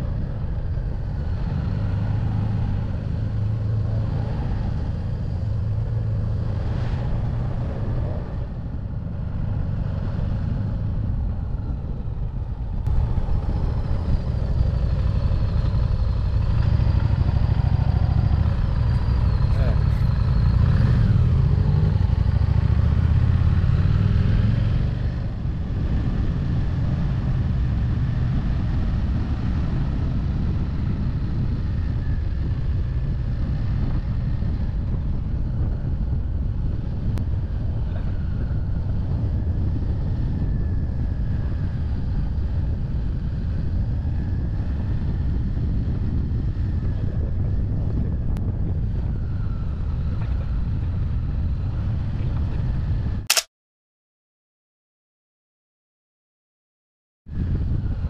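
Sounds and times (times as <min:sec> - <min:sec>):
wind noise: 0:00.0 - 0:53.4, 0:57.3 - 0:58.0
road noise: 0:00.0 - 0:53.5
motorcycle engine running: 0:10.5 - 0:24.5.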